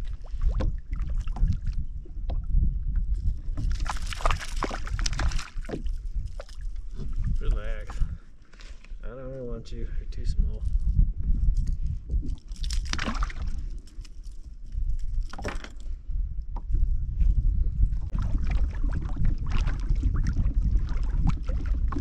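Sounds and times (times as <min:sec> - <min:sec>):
steady low rumble: 0:00.0 - 0:08.4, 0:09.0 - 0:15.3, 0:15.9 - 0:22.0
water sloshing against kayak hull: 0:00.0 - 0:08.6, 0:18.1 - 0:22.0.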